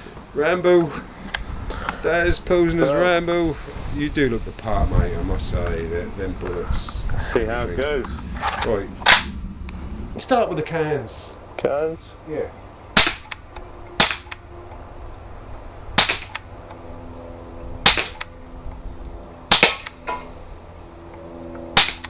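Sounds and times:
bb gun shots: 0:08.4 - 0:09.4, 0:13.0 - 0:13.4, 0:14.0 - 0:14.4, 0:16.0 - 0:16.5, 0:17.8 - 0:18.3, 0:19.5 - 0:20.0, 0:21.7 - 0:22.0.

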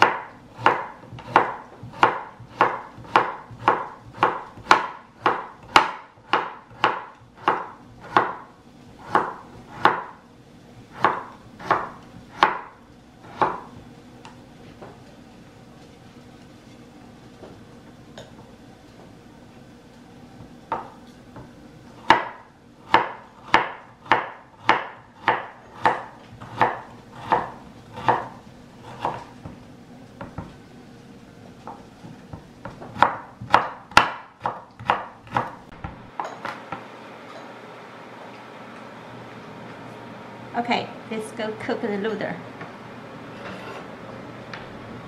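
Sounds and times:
cleaver chopping on wooden board: 0:00.0 - 0:08.4, 0:33.0 - 0:35.5.

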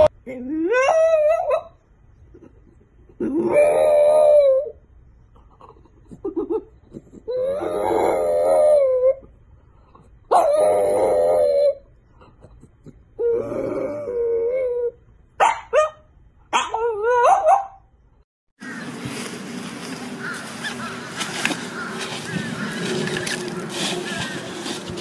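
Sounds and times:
dog howling: 0:03.4 - 0:04.8, 0:07.3 - 0:09.2, 0:10.3 - 0:11.8.

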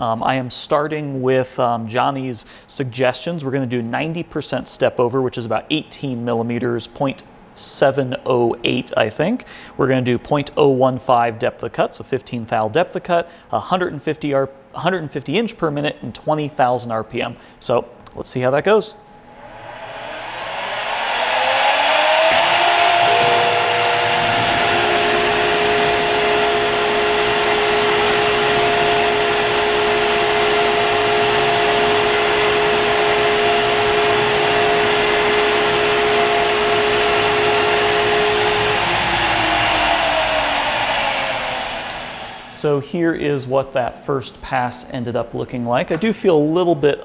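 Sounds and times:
lower machine tone: 0:18.9 - 0:42.8
router spindle whine: 0:19.1 - 0:42.6.

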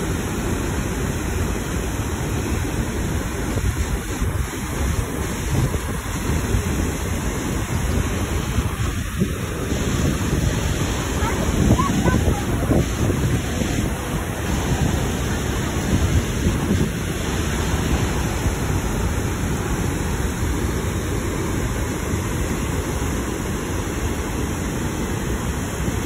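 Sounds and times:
waterfall rushing: 0:00.0 - 0:26.0
wind buffeting microphone: 0:03.2 - 0:21.8.

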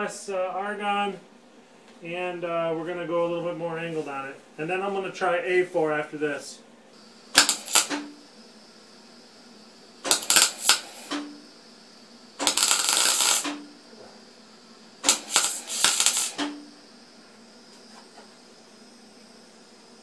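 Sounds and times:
low hum from welder: 0:00.0 - 0:20.0
welding arc crackling: 0:07.0 - 0:09.0, 0:09.6 - 0:13.8, 0:14.4 - 0:16.9.

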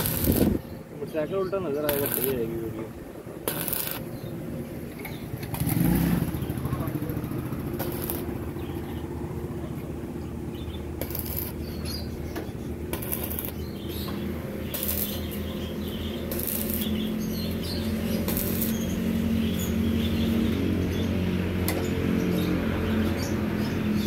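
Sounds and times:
welding arc crackling hiss: 0:00.0 - 0:00.8, 0:01.8 - 0:02.7, 0:03.4 - 0:04.2, 0:07.7 - 0:08.5, 0:11.0 - 0:12.0, 0:12.9 - 0:19.6.

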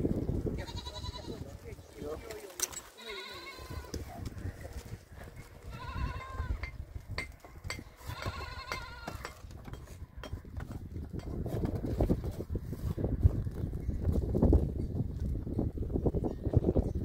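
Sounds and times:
goats bleating: 0:00.6 - 0:01.5, 0:02.9 - 0:04.1, 0:05.6 - 0:06.6, 0:08.0 - 0:09.2.

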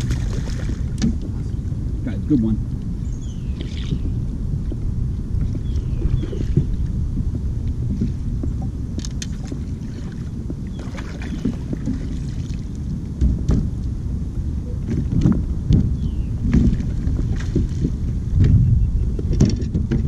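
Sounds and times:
small splashes: 0:00.0 - 0:01.1
water around a kayak: 0:00.0 - 0:20.0
wind rumble on microphone: 0:00.0 - 0:20.0.

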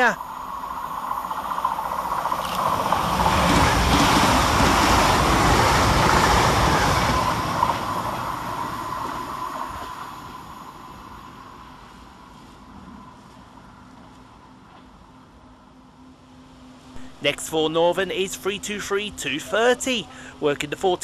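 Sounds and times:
train rushing past: 0:00.0 - 0:14.6
steady whine: 0:00.0 - 0:21.0.

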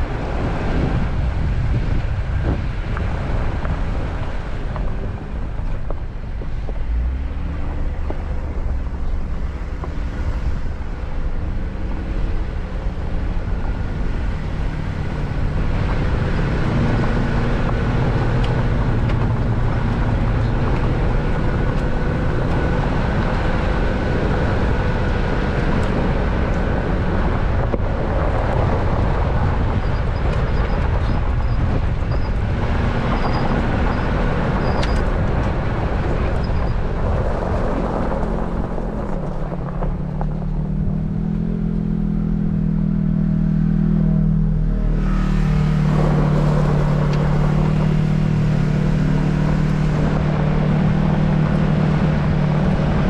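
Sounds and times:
car engine running: 0:00.0 - 0:53.0
tyres rolling over gravel: 0:12.3 - 0:41.5.

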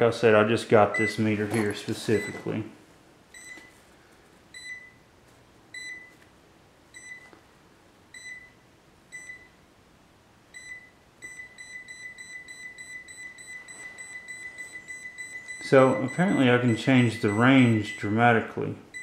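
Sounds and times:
clamp meter beeping: 0:00.9 - 0:01.2, 0:03.3 - 0:03.8, 0:04.5 - 0:05.0, 0:05.7 - 0:06.2, 0:06.9 - 0:07.3, 0:08.1 - 0:09.6, 0:10.5 - 0:18.3.

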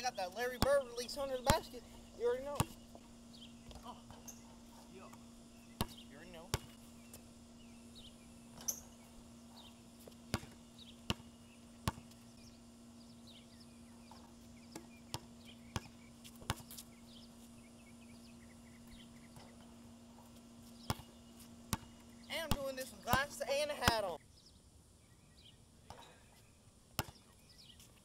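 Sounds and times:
steady low hum: 0:00.0 - 0:28.0
basketball bouncing: 0:00.4 - 0:04.4, 0:05.1 - 0:07.3, 0:08.5 - 0:12.2, 0:14.0 - 0:16.8, 0:20.8 - 0:24.1, 0:27.0 - 0:27.2.

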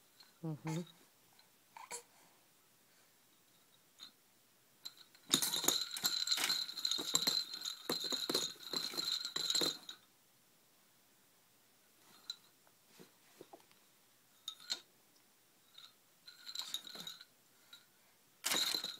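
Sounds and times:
foil pinwheel toy rattling: 0:05.3 - 0:10.0, 0:18.4 - 0:18.9.

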